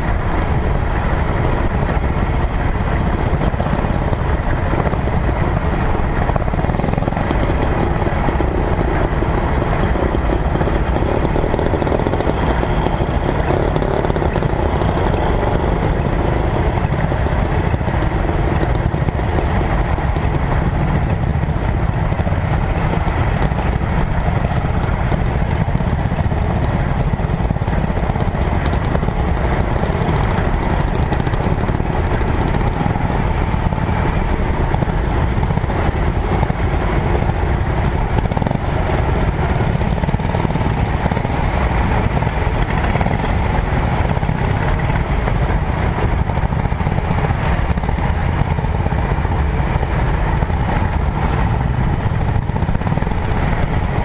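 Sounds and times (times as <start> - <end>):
car engine and road rumble: 0.0 - 54.0.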